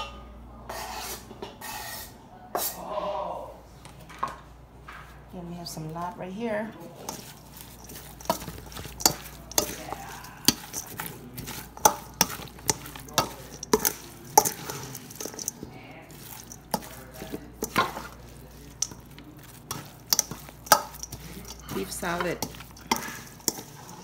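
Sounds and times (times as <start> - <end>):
soft swish of salad: 6.8 - 24.0
spoon clinking on steel bowl: 7.1 - 24.0.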